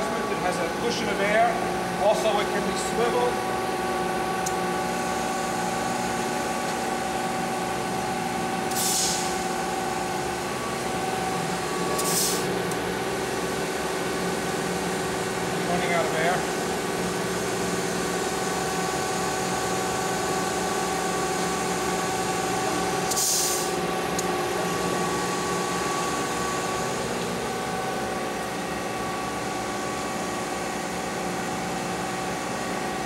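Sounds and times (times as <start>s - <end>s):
grinding machine humming: 0.0s - 23.1s, 23.7s - 33.0s
hiss burst: 8.7s - 9.4s, 12.0s - 12.5s, 23.1s - 23.7s.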